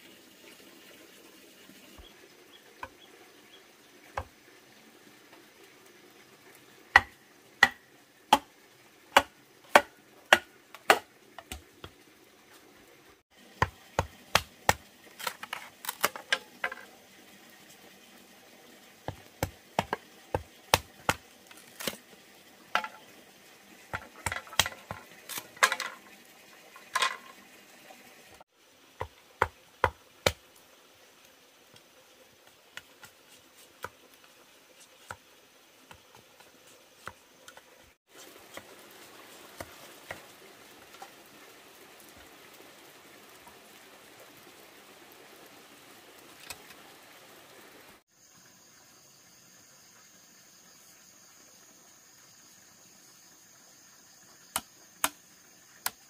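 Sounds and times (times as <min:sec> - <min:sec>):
machete splitting bamboo: 0:07.0 - 0:08.5, 0:09.2 - 0:11.6, 0:13.6 - 0:16.5, 0:19.4 - 0:22.0, 0:24.0 - 0:26.0.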